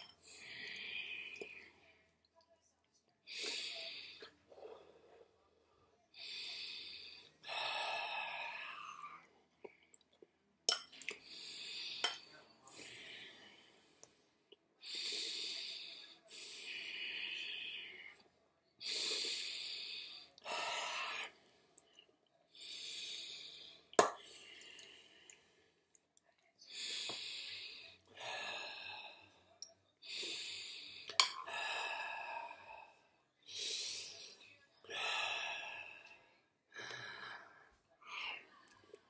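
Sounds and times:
person breathing heavily: 0:00.0 - 0:01.8, 0:06.2 - 0:09.0, 0:18.8 - 0:21.6, 0:26.7 - 0:38.6.

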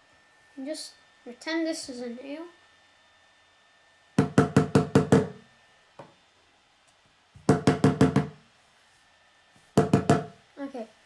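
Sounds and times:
plastic hammer knocking on wood: 0:04.2 - 0:05.4, 0:07.4 - 0:08.4, 0:09.8 - 0:10.4.

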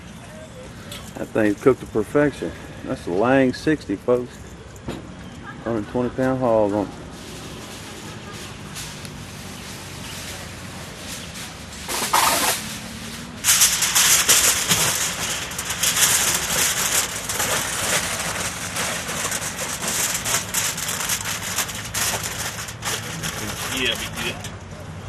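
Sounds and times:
aluminium foil crinkling: 0:07.1 - 0:24.5.

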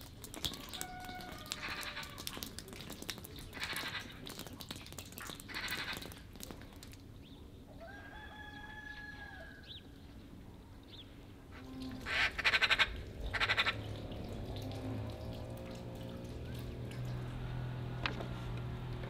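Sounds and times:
water dripping: 0:00.0 - 0:07.5, 0:11.5 - 0:19.0
rooster crowing: 0:00.5 - 0:02.2, 0:07.8 - 0:09.6
bird chatter: 0:03.2 - 0:06.2.

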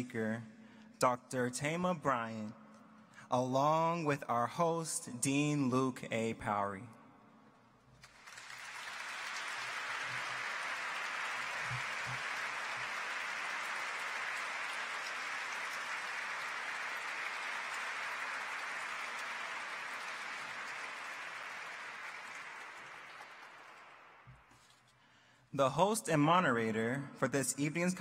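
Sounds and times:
audience applauding: 0:08.0 - 0:24.5.

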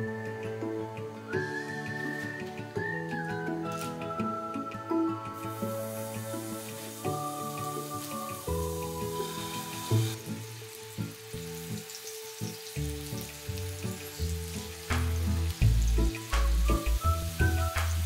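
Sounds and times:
soft background music: 0:00.0 - 0:18.0
meatballs sizzling in oil: 0:05.4 - 0:18.0.

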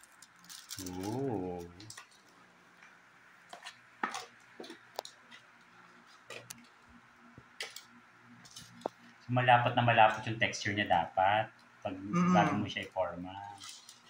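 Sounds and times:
paper crinkle: 0:00.0 - 0:02.3, 0:13.5 - 0:14.0.

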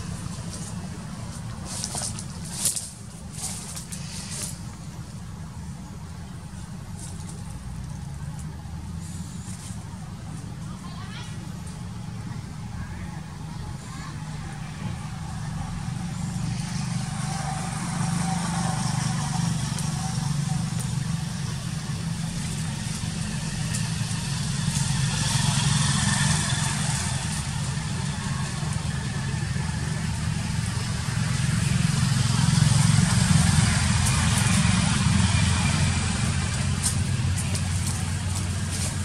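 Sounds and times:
vehicle engine humming: 0:00.0 - 0:39.0.

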